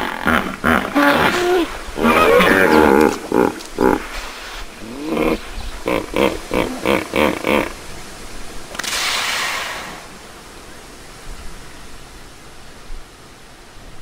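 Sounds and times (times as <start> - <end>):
hippopotamus honking: 0.0 - 4.2, 4.8 - 7.8
steady hiss: 0.0 - 14.0.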